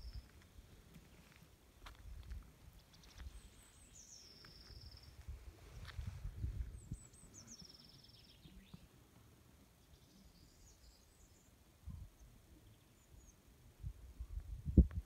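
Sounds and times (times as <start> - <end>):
faint high bird chirps: 0.0 - 0.3, 2.8 - 5.3, 6.6 - 8.9, 9.8 - 13.4.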